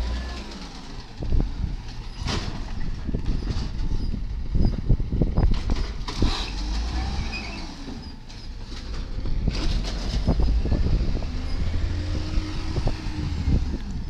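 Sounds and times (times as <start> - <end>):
garbage truck engine rumble: 0.0 - 14.0
metal clanks and knocks: 1.8 - 6.2.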